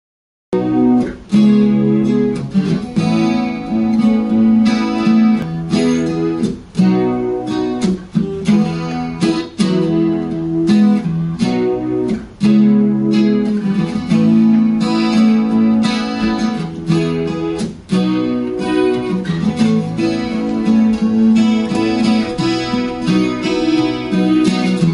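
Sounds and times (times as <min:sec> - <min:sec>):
acoustic guitar playing: 0:00.5 - 0:24.9.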